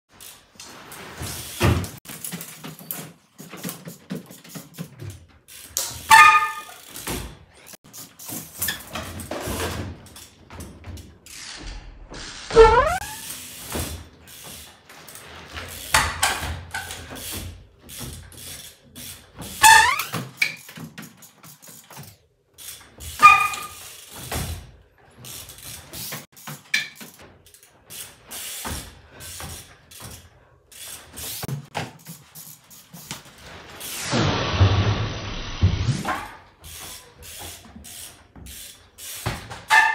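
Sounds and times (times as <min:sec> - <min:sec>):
short squeaks: 0:06.1 - 0:07.0, 0:12.5 - 0:13.4, 0:19.6 - 0:20.7, 0:23.2 - 0:23.9.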